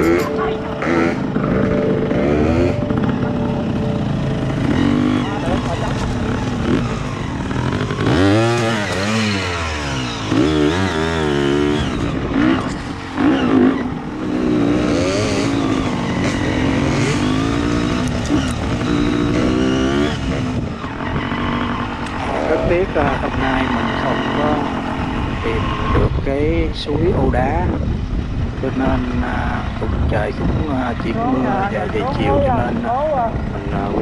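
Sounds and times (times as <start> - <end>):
dirt bike engine revving: 0.0 - 27.3.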